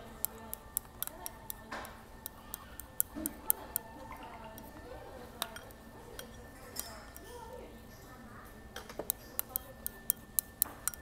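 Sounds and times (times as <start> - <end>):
murmur of voices: 0.0 - 11.0
tableware clicking and clinking: 0.0 - 11.0.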